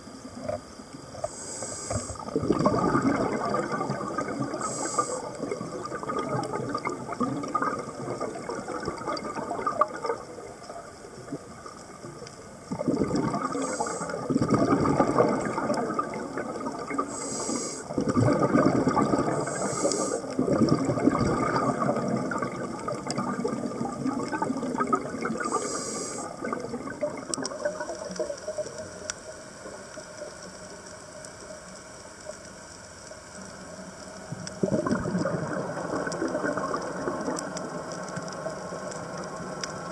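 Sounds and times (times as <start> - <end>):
underwater regulator bubbles gurgling: 0.0 - 39.9
short high hisses: 17.2 - 17.9, 19.4 - 20.2.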